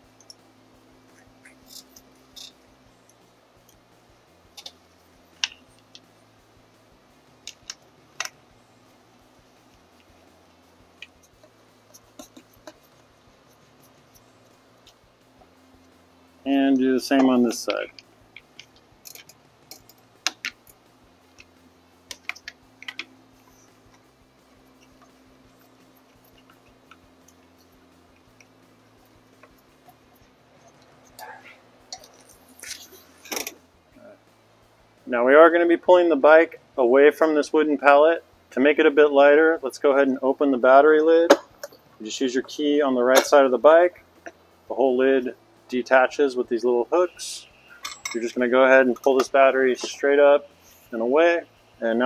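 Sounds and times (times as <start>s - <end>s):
metal hardware handled: 47.8s - 48.3s.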